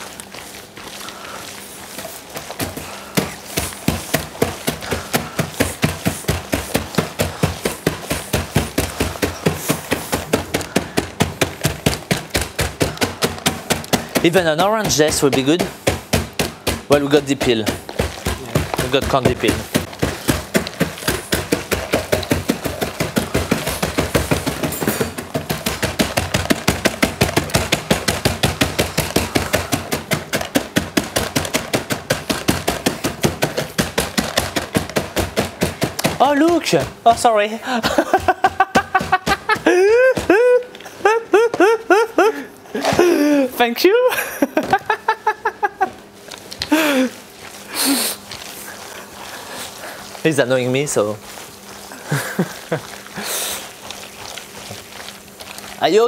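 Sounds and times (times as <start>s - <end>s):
rolling pin pounding plastic tub: 0.0s - 56.0s
man laughing: 37.6s - 47.2s, 51.9s - 53.0s.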